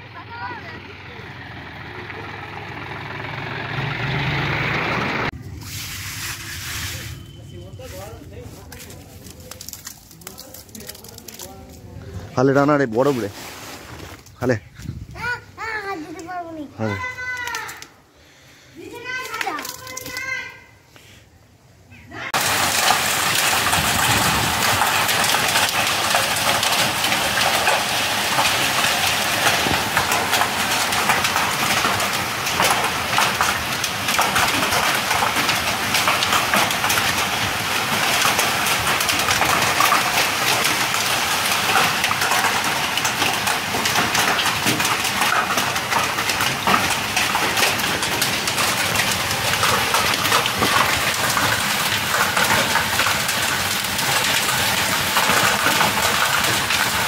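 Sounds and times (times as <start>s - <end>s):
hail drumming on sheet-metal roofs: 7.6s - 11.8s, 15.2s - 17.9s, 18.8s - 20.6s, 22.3s - 57.0s.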